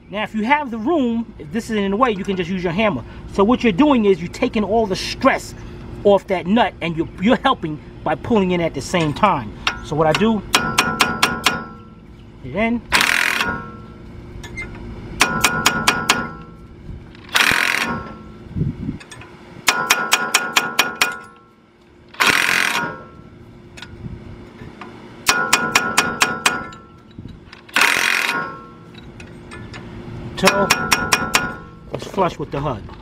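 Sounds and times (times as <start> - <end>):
hammer tapping steel punch: 9.6 - 11.8, 14.5 - 16.5, 19.0 - 21.5, 25.3 - 27.1, 30.4 - 31.7
impact wrench bursts: 9.6 - 12.0, 12.9 - 18.4, 19.0 - 21.5, 22.1 - 23.9, 25.2 - 29.8, 30.4 - 32.0.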